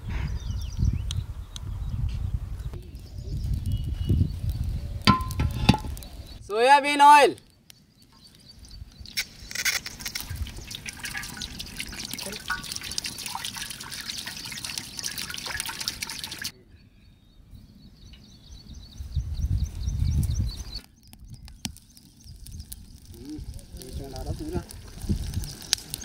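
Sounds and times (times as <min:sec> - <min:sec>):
oil trickling into pan: 0:09.7 - 0:16.5, 0:21.9 - 0:26.0.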